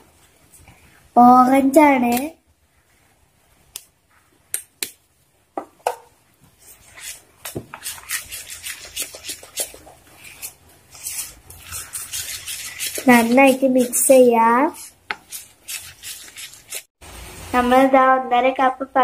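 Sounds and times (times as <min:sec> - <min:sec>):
spoon stirring thick batter: 0:06.5 - 0:16.9.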